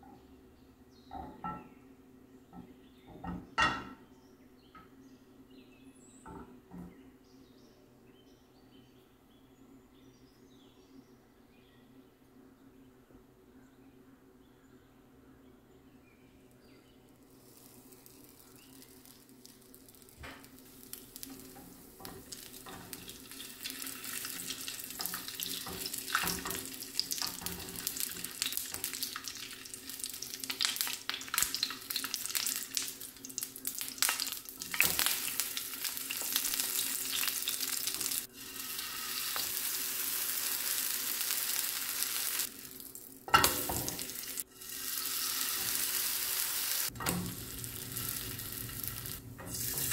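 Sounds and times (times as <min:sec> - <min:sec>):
oil sizzling and popping: 0:17.1 - 0:49.9.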